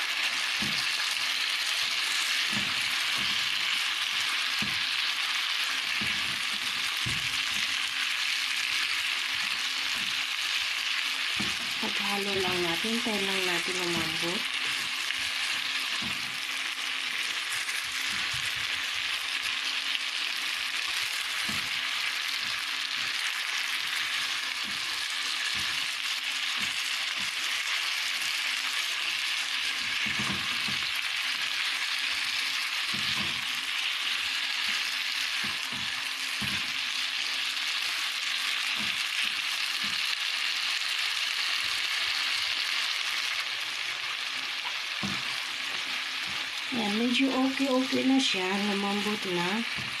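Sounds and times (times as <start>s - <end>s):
vegetables sizzling in oil: 0.0s - 50.0s.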